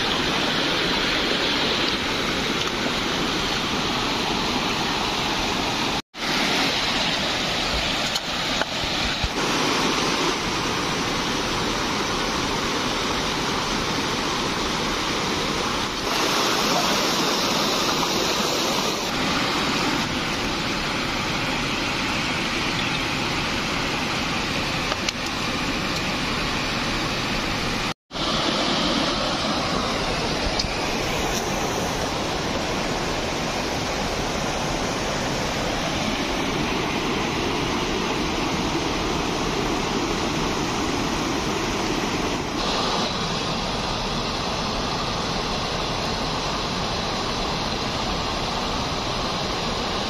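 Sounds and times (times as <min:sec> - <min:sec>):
water rushing over rocks: 0:00.0 - 0:50.0.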